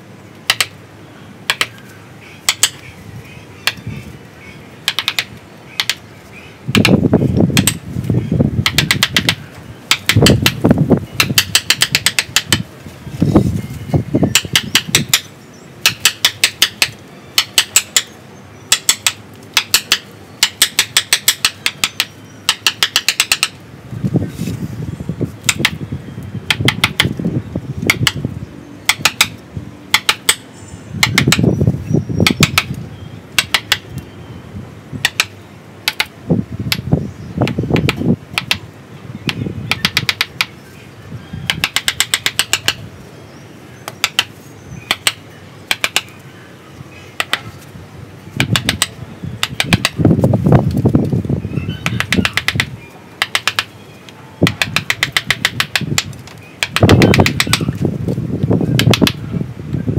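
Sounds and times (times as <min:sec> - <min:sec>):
chisel tapping into wood: 0:00.5 - 0:00.7, 0:01.5 - 0:01.8, 0:02.5 - 0:02.8, 0:04.9 - 0:06.0, 0:08.6 - 0:10.6, 0:11.2 - 0:12.6, 0:18.7 - 0:23.6, 0:25.5 - 0:25.8, 0:26.5 - 0:27.1, 0:28.9 - 0:29.3, 0:30.0 - 0:30.4, 0:31.0 - 0:31.4, 0:33.4 - 0:33.8, 0:35.9 - 0:36.1, 0:37.8 - 0:38.6, 0:39.3 - 0:40.5, 0:41.5 - 0:42.8, 0:44.9 - 0:46.1, 0:47.2 - 0:47.4, 0:48.4 - 0:50.0, 0:51.8 - 0:53.7, 0:54.4 - 0:57.7, 0:58.8 - 0:59.2.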